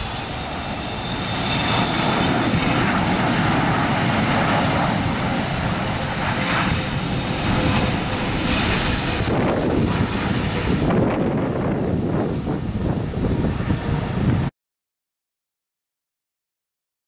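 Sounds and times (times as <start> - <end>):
faint high whine: 0.0 - 10.4
jet engines roaring: 0.0 - 14.5.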